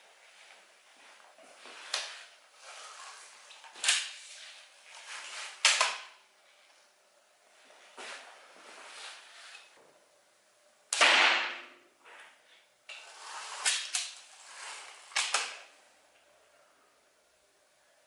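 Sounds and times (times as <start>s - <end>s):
slingshot rifle shot: 10.9s - 11.7s.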